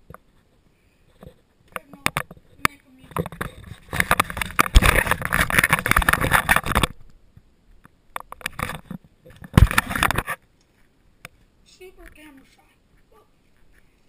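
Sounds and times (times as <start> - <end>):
camera handling rustling: 1.2 - 7.0, 8.2 - 10.9.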